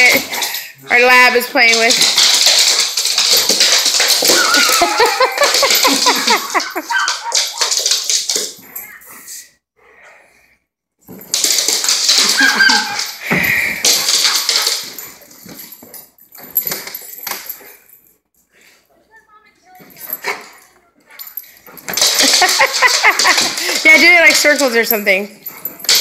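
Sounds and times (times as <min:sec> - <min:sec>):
claws scrabbling on laminate floor: 0:01.9 - 0:08.7, 0:11.1 - 0:17.6
dog whining and yipping: 0:04.2 - 0:05.2, 0:06.8 - 0:07.8, 0:12.2 - 0:13.2.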